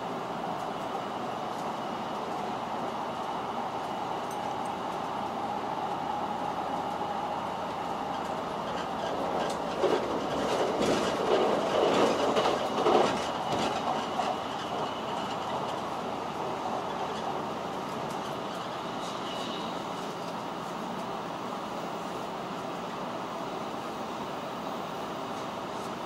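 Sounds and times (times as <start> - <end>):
train wheels rumbling on rail: 0.0 - 26.0
wheel clacks: 8.1 - 15.8.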